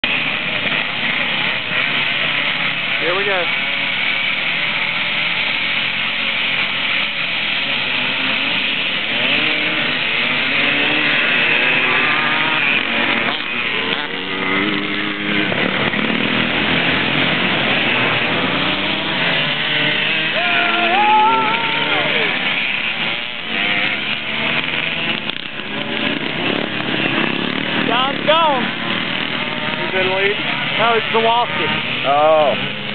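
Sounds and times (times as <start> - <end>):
motorcycle accelerating away: 0.0 - 32.9
motorcycles revving: 0.0 - 32.9.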